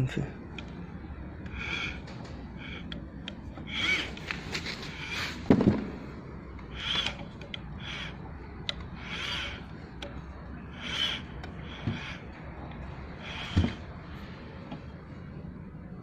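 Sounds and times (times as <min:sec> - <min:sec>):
valve disc squeaking on seat: 0:01.5 - 0:02.9, 0:03.5 - 0:05.4, 0:06.7 - 0:14.0.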